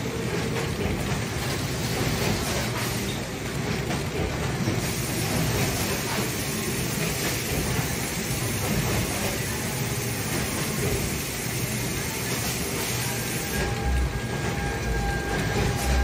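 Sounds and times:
conveyor machinery running: 0:00.0 - 0:16.0.

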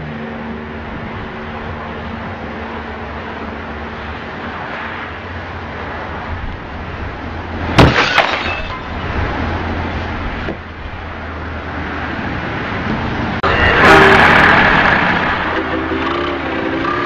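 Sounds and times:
steady traffic noise: 0:00.0 - 0:17.0
car crash impact: 0:07.8 - 0:08.9.

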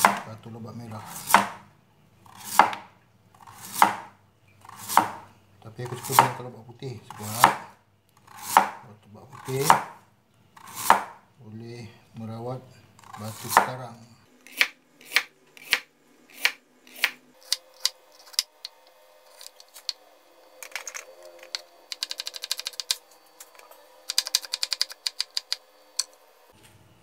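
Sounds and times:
knife chopping on cutting board: 0:00.0 - 0:00.3, 0:01.0 - 0:01.7, 0:02.3 - 0:02.9, 0:03.5 - 0:05.3, 0:05.9 - 0:06.4, 0:07.1 - 0:07.7, 0:08.3 - 0:08.8, 0:09.4 - 0:10.0, 0:10.6 - 0:11.2, 0:13.0 - 0:13.8, 0:14.4 - 0:18.5.

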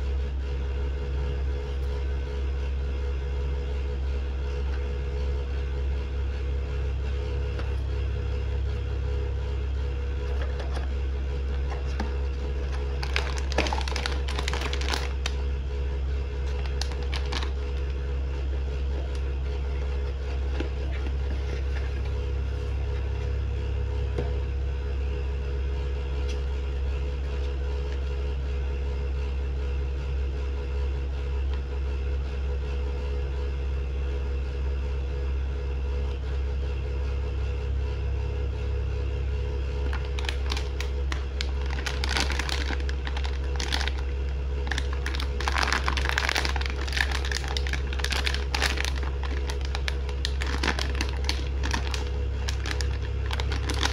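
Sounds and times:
steady low rumble: 0:00.0 - 0:53.9
cardboard and paper rustling: 0:10.2 - 0:15.4, 0:16.4 - 0:18.0, 0:18.9 - 0:22.2, 0:39.8 - 0:53.9.

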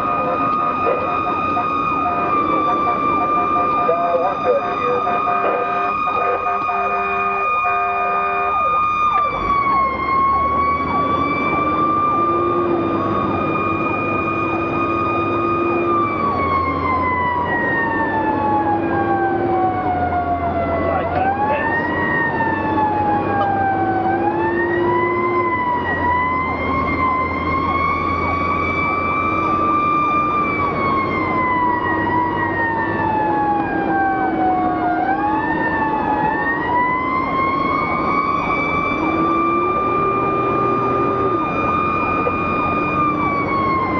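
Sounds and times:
low-pitched horn blasts: 0:00.0 - 0:08.8
fire engine siren wailing: 0:00.0 - 0:43.9
truck engine droning: 0:00.0 - 0:43.9.

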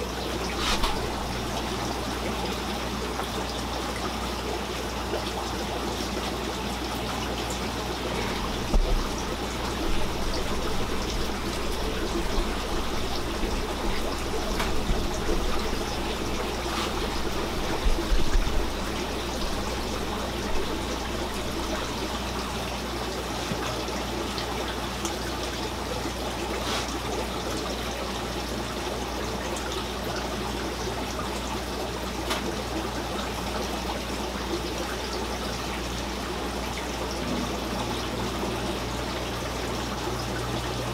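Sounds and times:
low steady hum: 0:00.0 - 0:26.5
water trickling in aquarium filter: 0:00.0 - 0:40.9.

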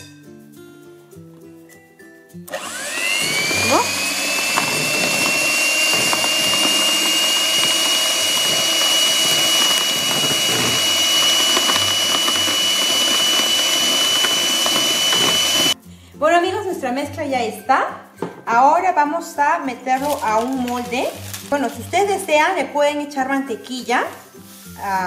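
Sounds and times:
electric hand mixer whining: 0:02.5 - 0:15.8.

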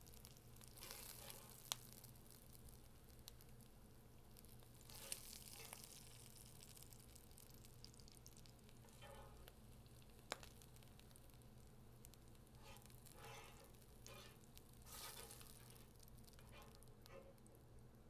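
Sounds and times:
meat sizzling in skillet: 0:00.0 - 0:17.4
spatula scraping pan: 0:00.8 - 0:01.6, 0:04.9 - 0:05.9, 0:08.9 - 0:09.4, 0:12.5 - 0:17.4.

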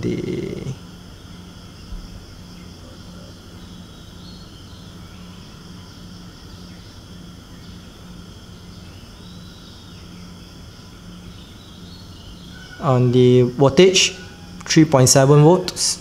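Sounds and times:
high hiss: 0:00.0 - 0:02.6.

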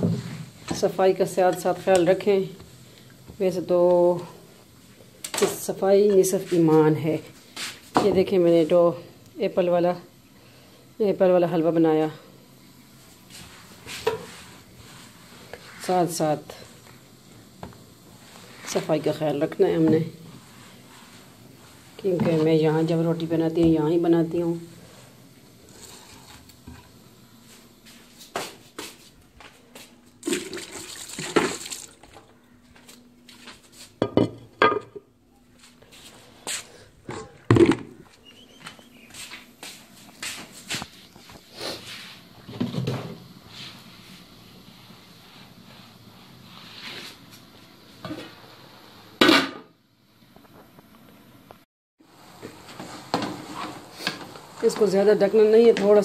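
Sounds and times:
water sloshing in a bowl: 0:30.2 - 0:32.2.

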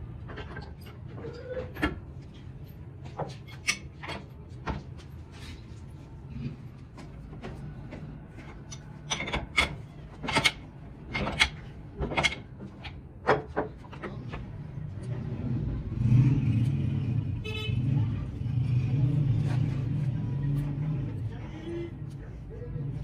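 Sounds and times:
vehicle engine rumble: 0:00.0 - 0:23.0
metal tools clanking on steel: 0:08.6 - 0:12.5.

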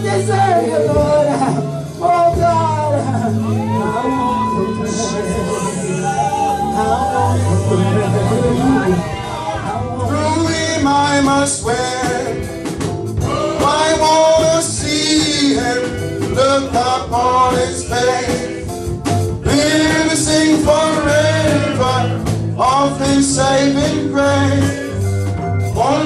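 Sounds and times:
instrumental accompaniment: 0:00.0 - 0:26.0
men's choir singing a hymn: 0:05.7 - 0:26.0.

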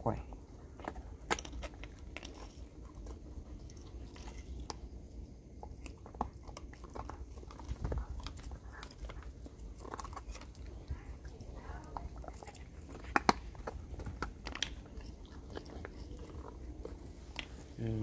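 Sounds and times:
dog gnawing a bone: 0:00.2 - 0:18.0.

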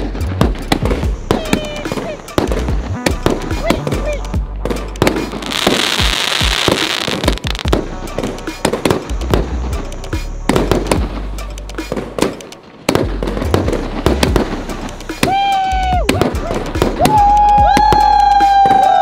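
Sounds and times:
firework shells crackling: 0:00.6 - 0:19.0.

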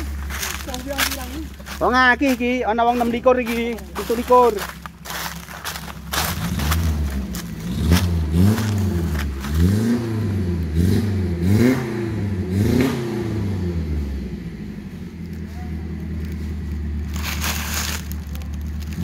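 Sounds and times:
jeep engine revving: 0:00.0 - 0:19.0.

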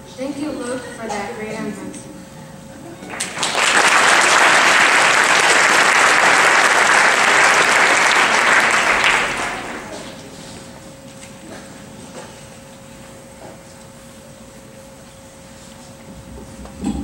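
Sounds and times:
audience applauding: 0:03.0 - 0:10.3.

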